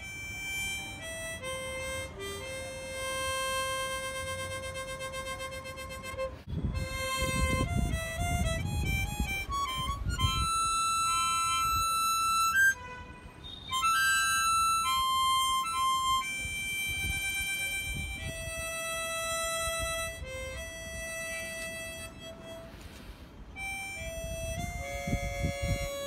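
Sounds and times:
harmonica melody: 0.0 - 26.0.

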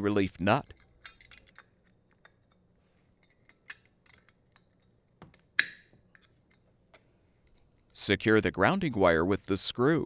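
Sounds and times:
small metal parts clicking: 0.6 - 5.5.

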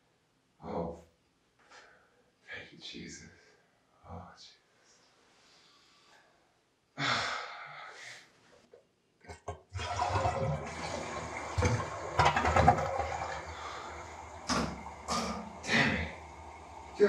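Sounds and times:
toilet flushing water rushing: 9.5 - 17.0.

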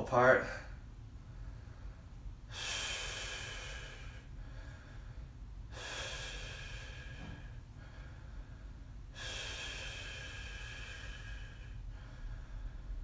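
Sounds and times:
man exhaling forcefully: 2.5 - 4.3, 5.7 - 8.1, 9.2 - 12.7.

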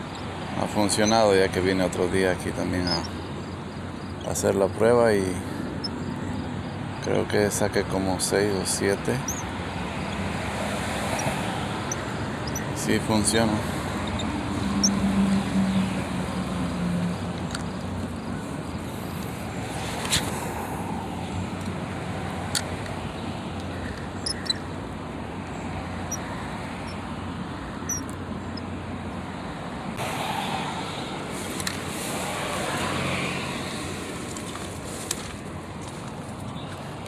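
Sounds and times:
distant road traffic: 0.0 - 37.0
sharp clicks: 22.4 - 23.0.

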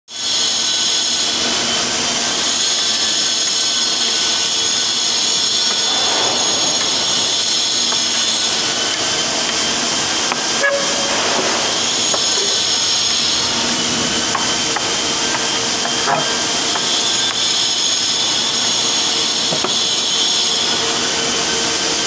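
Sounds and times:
high mechanical whine: 5.0 - 14.1.

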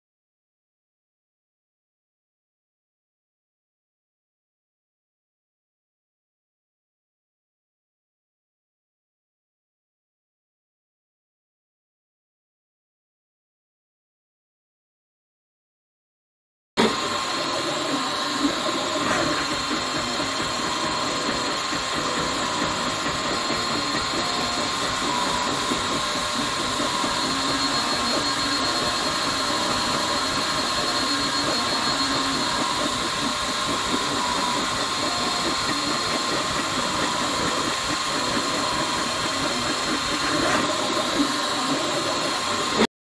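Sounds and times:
three-d printer running: 16.8 - 42.9.

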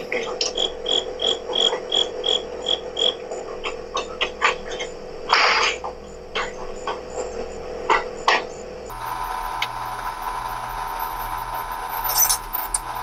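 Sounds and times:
cricket chirping: 0.4 - 13.0
scattered clicks: 8.9 - 13.0.

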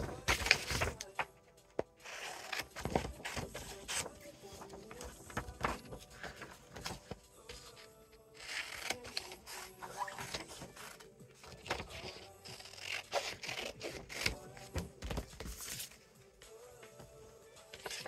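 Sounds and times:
scissors cutting paper: 0.0 - 1.2, 2.0 - 7.1, 7.7 - 14.7
paper rustling and crinkling: 0.0 - 7.9, 13.1 - 16.1.

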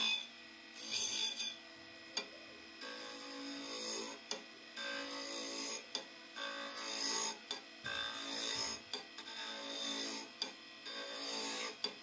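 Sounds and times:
steady low hum: 0.0 - 12.0
chisel scraping wood on lathe: 2.9 - 4.2, 4.8 - 5.9, 6.5 - 10.3, 10.9 - 11.9.

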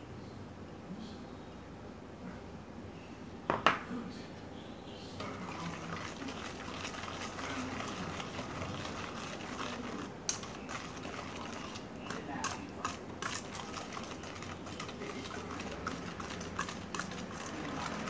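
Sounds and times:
whisk scraping metal bowl: 5.2 - 18.0.

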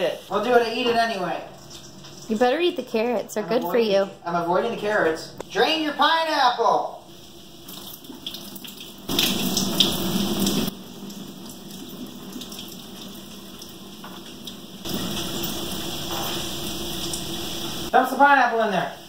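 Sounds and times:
juice pouring into sink: 7.6 - 17.9.

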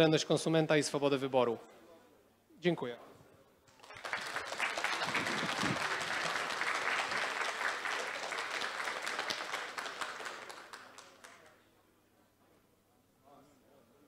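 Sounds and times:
audience applauding: 3.7 - 11.5.

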